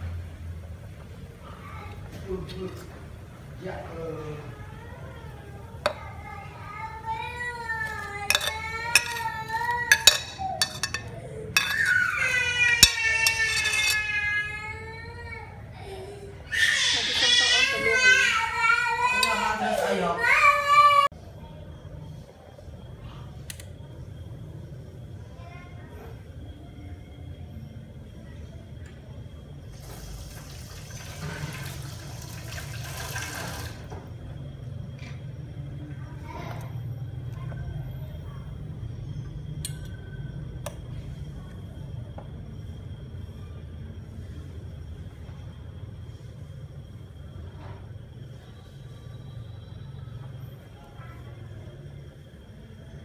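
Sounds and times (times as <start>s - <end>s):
utensil and plate clinking on pot: 8.3s - 14.2s.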